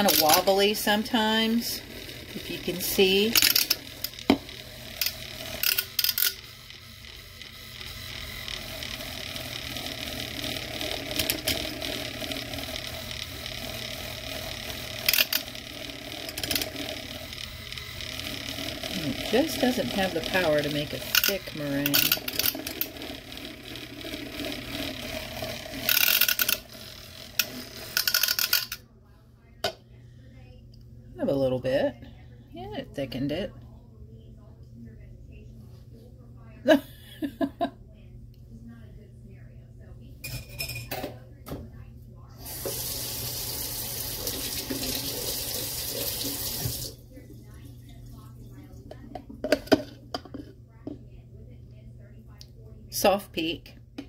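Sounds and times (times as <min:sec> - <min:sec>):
milk frother motor humming: 0:00.0 - 0:28.9, 0:42.2 - 0:51.0
water running: 0:42.4 - 0:48.4.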